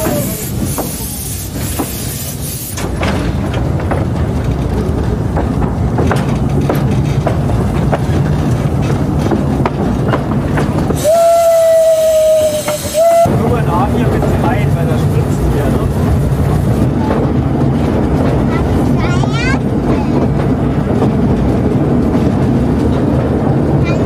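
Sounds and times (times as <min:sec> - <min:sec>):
rail clicks: 0:00.0 - 0:24.0
steam train rumbling on track: 0:00.0 - 0:24.0
steam locomotive whistle: 0:11.0 - 0:13.4.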